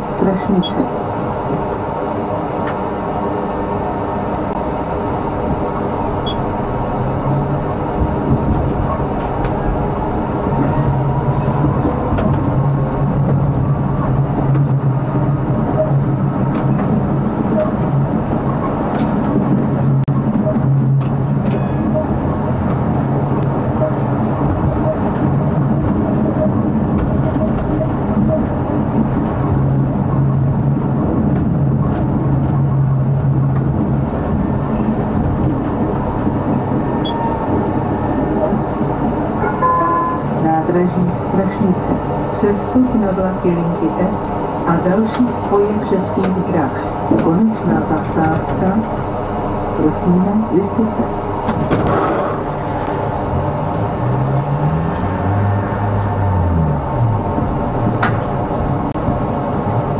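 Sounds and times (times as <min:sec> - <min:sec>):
tram low hum: 0:00.0 - 0:59.9
wheels rumbling on rails: 0:00.0 - 0:59.9.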